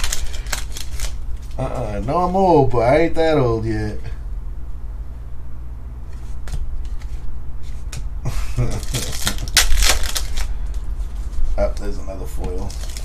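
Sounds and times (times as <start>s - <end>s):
cards clicking: 0.0s - 1.6s
foil wrapper crinkling and tearing: 0.0s - 2.0s, 8.6s - 10.8s, 11.6s - 13.0s.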